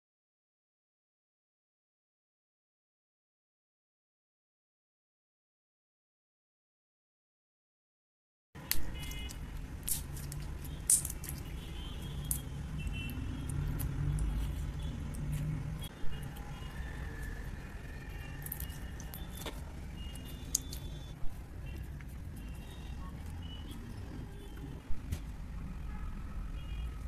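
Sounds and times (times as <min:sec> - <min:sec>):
sticky slime clicks and pops: 0:20.4 - 0:20.9.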